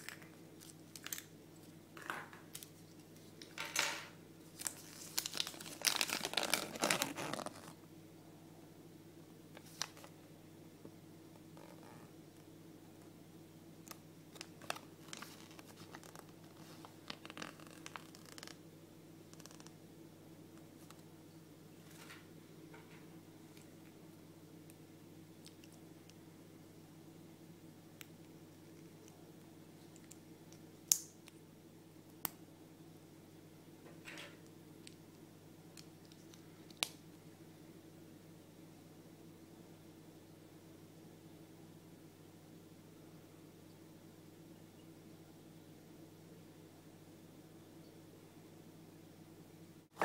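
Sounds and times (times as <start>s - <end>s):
paper leaflet crinkling: 4.5s - 7.8s, 14.3s - 18.5s
plastic rustle: 4.6s - 7.8s, 14.3s - 18.4s.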